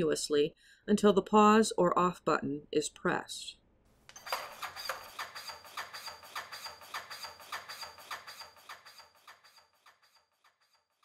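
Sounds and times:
chest compression piston strokes: 4.1 - 10.9.

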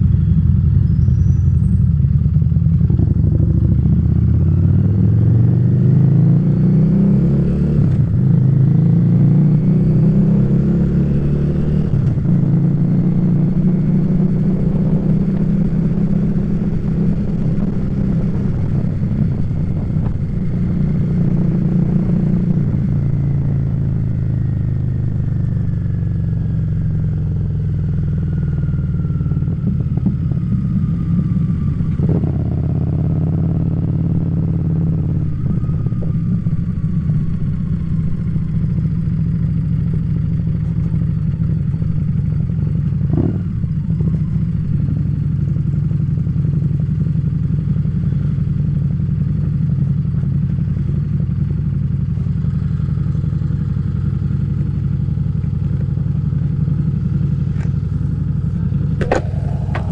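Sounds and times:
motorcycle engine running: 0.0 - 7.2, 7.8 - 59.9
faint falling whine: 58.7 - 59.9.

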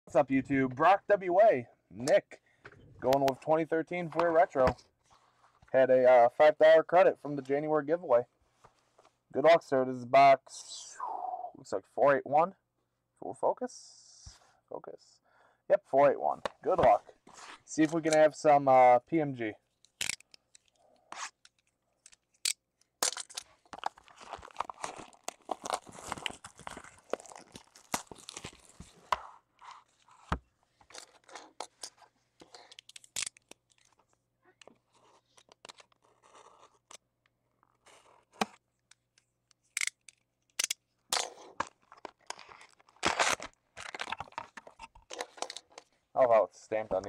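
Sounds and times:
plastic shrink-wrap crinkling: 23.4 - 28.9.

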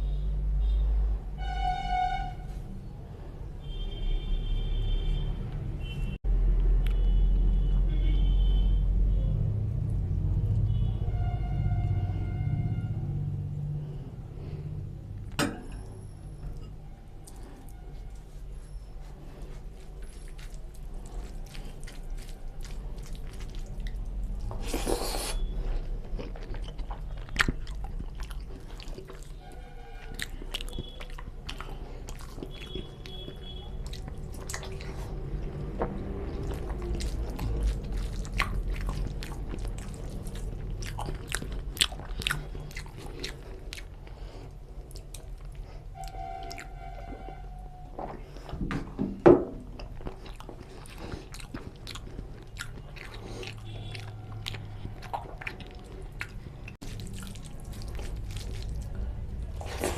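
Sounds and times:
fingers mixing rice and curry: 16.6 - 43.6, 49.8 - 59.9
chewing and biting food: 16.6 - 48.7, 49.6 - 59.9.

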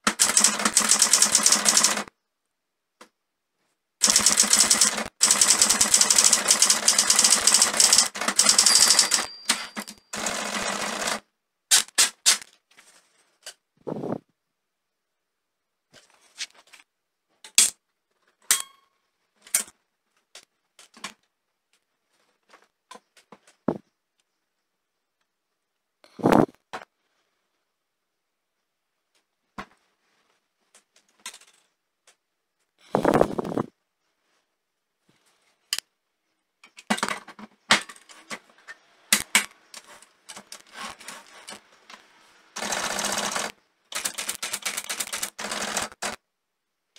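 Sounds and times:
typewriter metallic clacks and rattles: 0.0 - 2.1, 4.0 - 12.6, 42.6 - 46.2
typewriter rapid clicking: 0.0 - 2.1, 4.0 - 12.5, 42.6 - 46.2
typewriter knocks and clanks: 4.0 - 10.4
faint paper rustling: 15.9 - 16.9.

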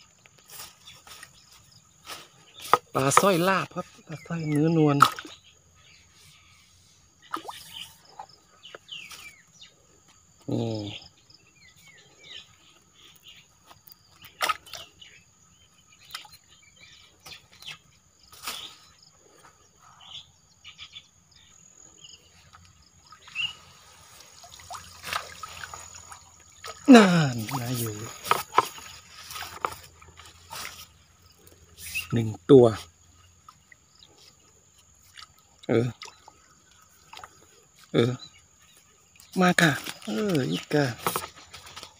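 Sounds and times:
faint high insect hum: 0.0 - 41.9
bird chirps and calls: 0.6 - 9.8, 10.5 - 29.4, 30.2 - 34.3.

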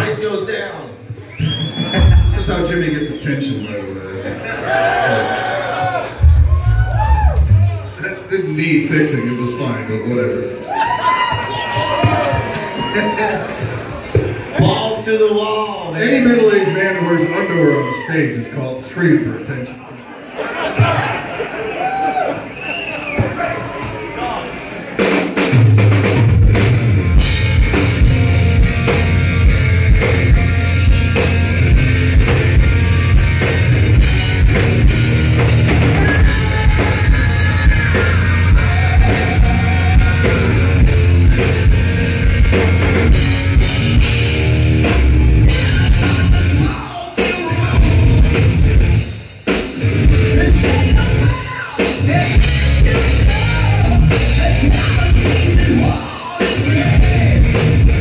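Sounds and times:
hard rock band playing: 1.4 - 3.1, 4.6 - 7.8, 25.0 - 58.0
man singing: 36.0 - 40.8, 45.5 - 48.4, 50.2 - 58.0.

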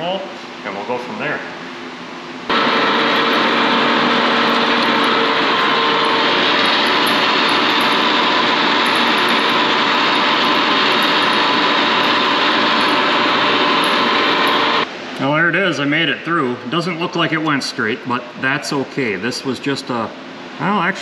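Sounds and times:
boring mill drilling steel: 2.5 - 14.9.

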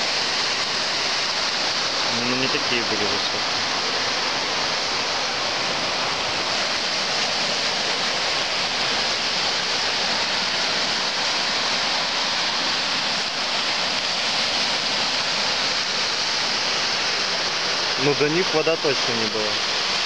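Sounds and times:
small waves washing on shore: 0.0 - 20.0.

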